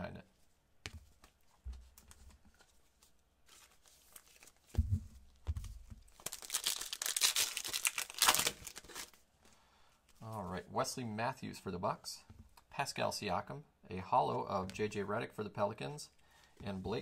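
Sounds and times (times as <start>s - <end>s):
wrapper tearing and crinkling: 6.1s - 9.2s.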